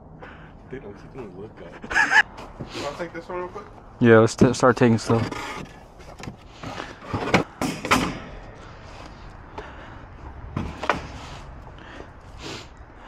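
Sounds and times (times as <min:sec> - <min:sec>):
wooden boards knocking and scraping: 0:04.4 - 0:08.2.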